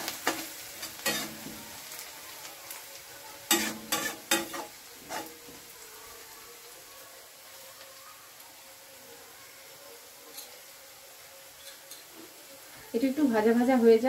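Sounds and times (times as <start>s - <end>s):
garlic sizzling in hot oil: 0.0s - 14.0s
metal spatula scraping pan: 0.2s - 1.6s, 3.5s - 5.4s.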